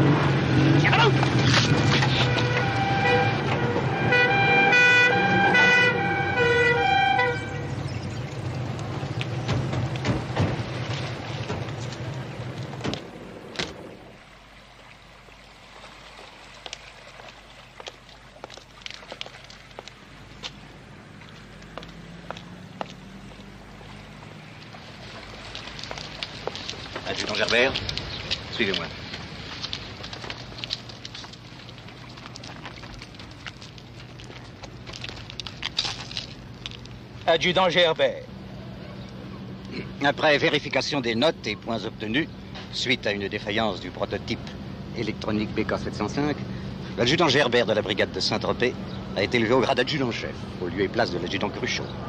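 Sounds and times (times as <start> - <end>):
footsteps of men walking: 7.7 - 13.6, 16.0 - 37.3.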